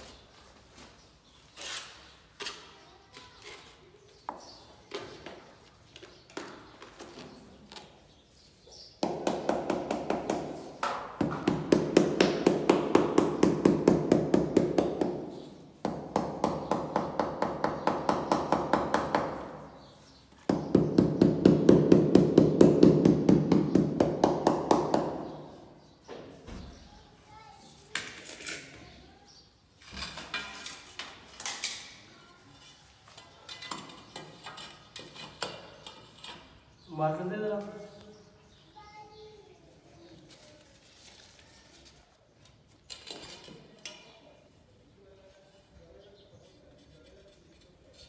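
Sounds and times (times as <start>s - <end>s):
trowel scraping mortar: 1.4s - 2.8s, 46.4s - 48.0s.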